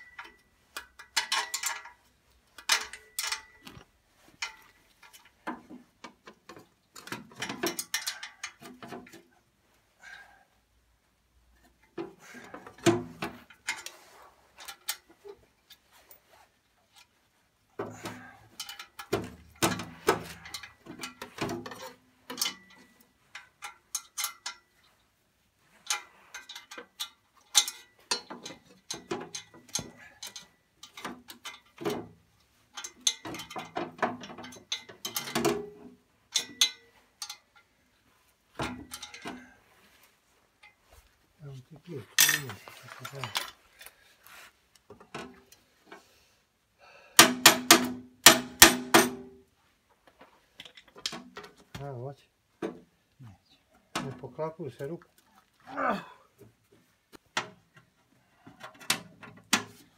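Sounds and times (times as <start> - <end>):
metallic clicking and clanking: 0.0 - 9.3, 17.8 - 24.9, 25.8 - 37.7, 38.6 - 39.5, 42.1 - 43.9, 47.2 - 49.4.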